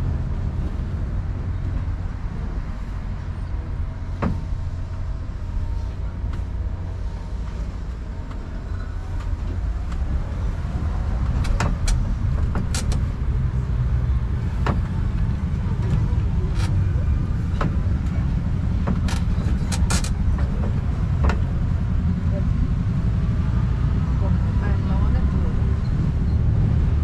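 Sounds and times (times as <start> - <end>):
road train rumbling: 0.0 - 27.0
sharp clicks and rattles: 11.2 - 13.7, 14.6 - 21.6.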